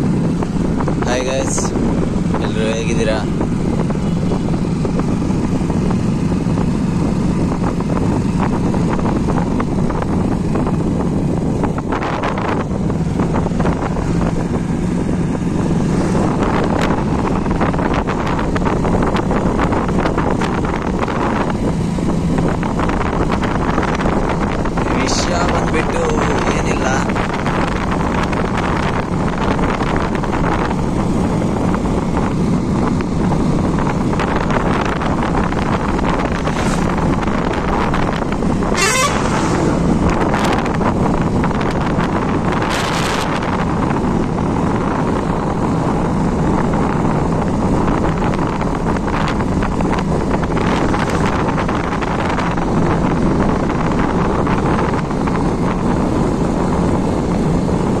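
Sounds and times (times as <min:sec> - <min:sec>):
motorcycle engine running: 0:00.0 - 0:58.0
wind noise on microphone: 0:00.0 - 0:58.0
brief high-pitched sounds: 0:38.8 - 0:39.9.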